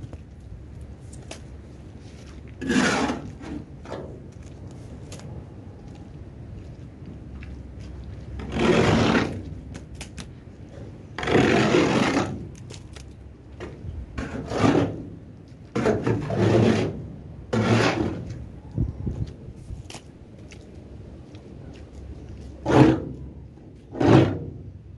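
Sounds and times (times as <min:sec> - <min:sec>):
scraper scraping trailer floor: 0:02.0 - 0:04.3, 0:08.3 - 0:09.7, 0:10.7 - 0:12.9, 0:13.6 - 0:18.5, 0:22.6 - 0:24.7.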